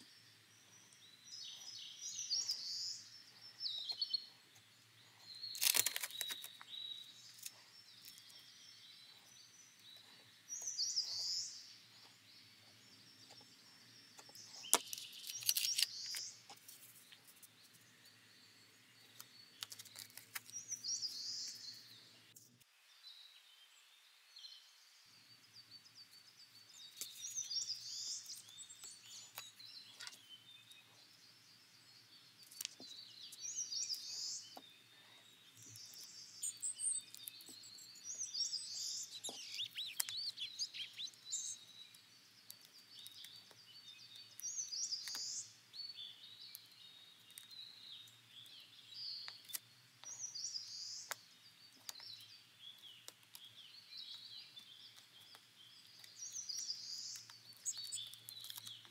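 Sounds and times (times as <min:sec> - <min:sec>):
birds chirping: 0:00.0 - 0:58.9
craft knife cutting paper: 0:05.5 - 0:06.6
paper rustling: 0:05.5 - 0:06.6.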